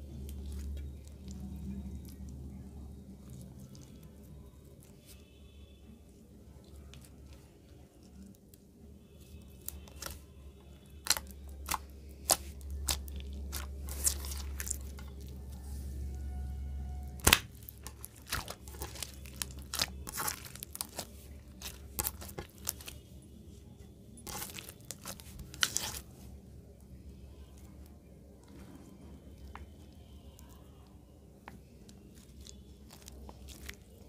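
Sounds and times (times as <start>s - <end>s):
slime crackling and popping: 9.2s - 10.2s, 10.9s - 15.7s, 17.0s - 23.1s, 24.2s - 26.1s, 29.3s - 34.0s.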